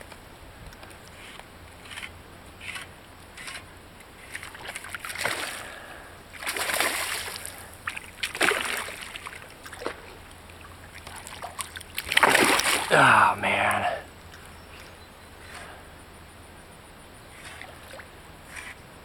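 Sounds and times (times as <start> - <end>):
fish splashing in water: 4.4 - 13.9.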